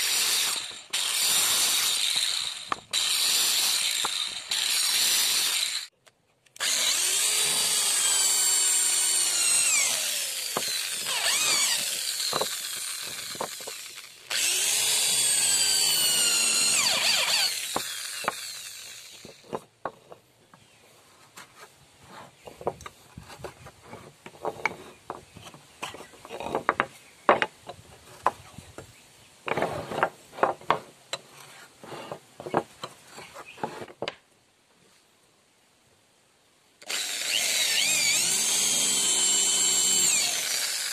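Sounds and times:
power saw whining through wood: 0:00.0 - 0:05.9, 0:06.6 - 0:19.7, 0:36.8 - 0:40.9
hand scraping wooden block: 0:19.2 - 0:28.6, 0:29.5 - 0:34.2.

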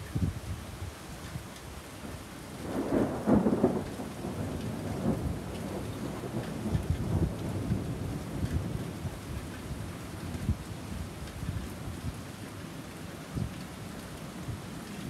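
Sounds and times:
heavy rain on pavement: 0:00.0 - 0:15.0
thunder rumble: 0:02.6 - 0:10.7.

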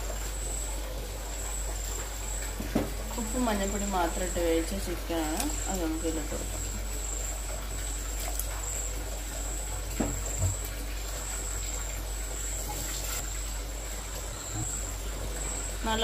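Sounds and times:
broth bubbling at a boil: 0:00.0 - 0:16.0
small knocks: 0:10.0 - 0:10.6.

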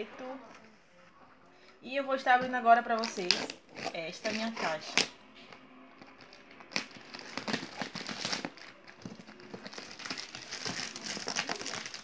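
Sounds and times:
plastic wrap crinkling: 0:06.0 - 0:12.0.

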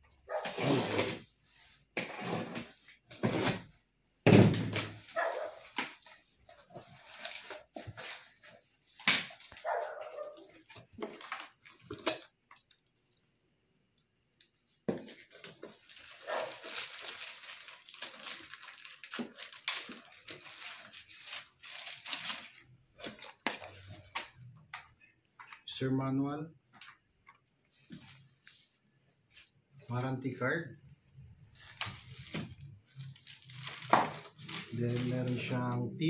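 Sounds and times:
plastic bags and paper rustling: 0:04.9 - 0:12.8, 0:14.9 - 0:24.4, 0:31.5 - 0:35.8.

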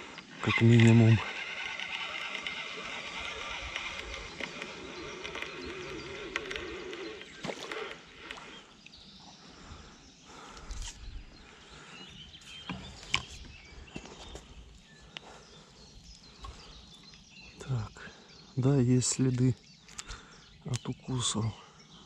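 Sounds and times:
fishing reel whirring: 0:00.0 - 0:08.6
sharp clicks: 0:00.1 - 0:08.4.

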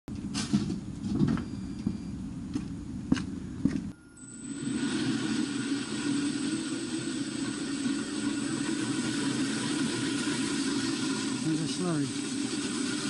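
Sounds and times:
floor grinder grinding concrete: 0:06.1 - 0:13.0.

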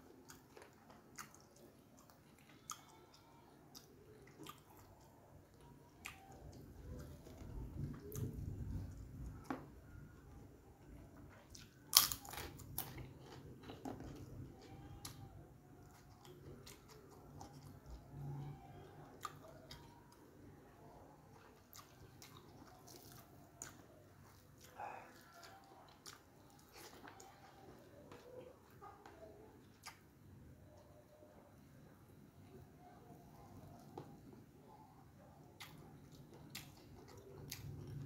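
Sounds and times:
chewing with small clicks: 0:00.0 - 0:31.4, 0:32.4 - 0:38.0
cracker crunching: 0:11.2 - 0:20.2.

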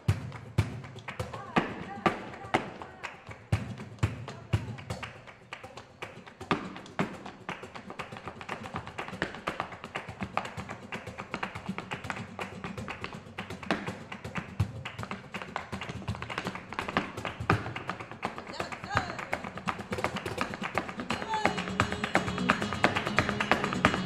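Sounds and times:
loud foot stamps: 0:13.6 - 0:24.0.

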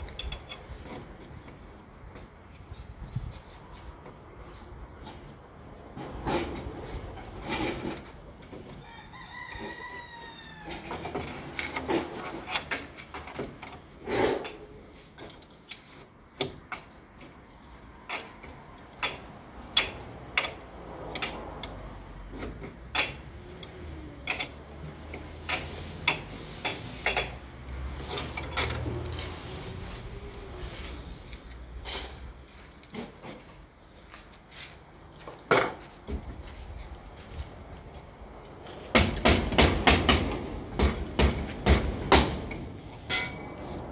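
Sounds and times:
rooster crowing: 0:08.8 - 0:11.1
metallic clinks and knocks: 0:42.5 - 0:43.7.

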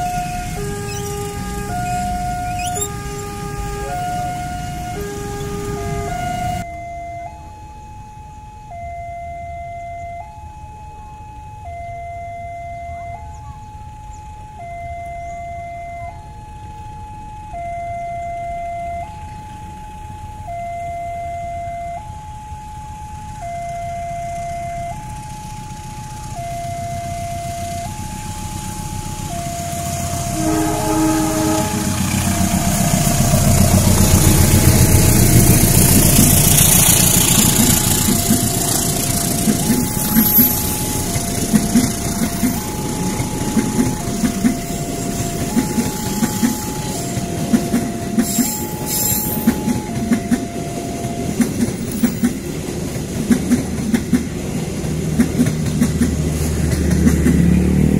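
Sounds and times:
train rushing past: 0:00.0 - 0:06.7, 0:24.8 - 0:57.9
diesel locomotive horn: 0:00.0 - 0:07.4, 0:26.2 - 0:57.9
two-tone level crossing alarm: 0:00.0 - 0:56.1.

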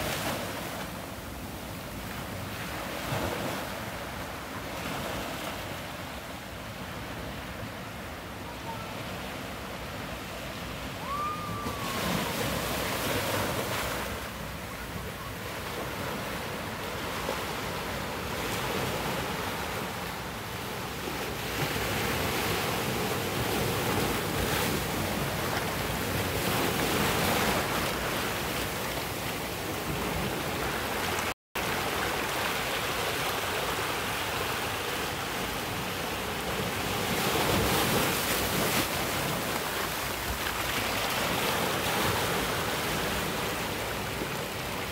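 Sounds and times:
ocean waves breaking over rocks: 0:00.0 - 0:44.9.

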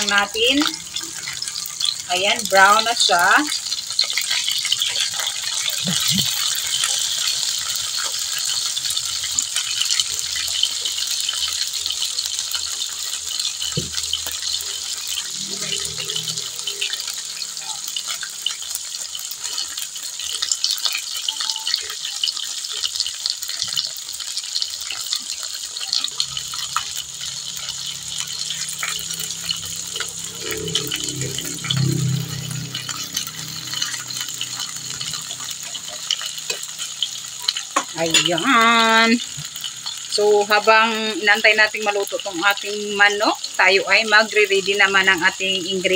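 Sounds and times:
chicken sizzling in hot oil: 0:00.0 - 0:45.9.

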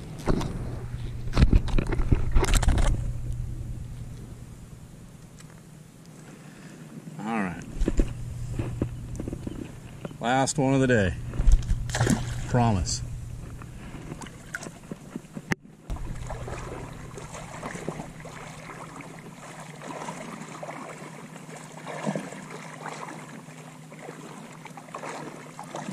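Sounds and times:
sea water lapping: 0:06.1 - 0:25.9
small splashes: 0:11.4 - 0:12.8, 0:13.4 - 0:25.9.

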